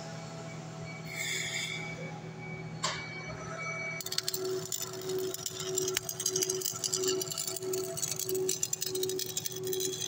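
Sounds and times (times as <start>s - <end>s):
electrical hum: 0.0s - 10.0s
welding arc crackling: 4.0s - 10.0s.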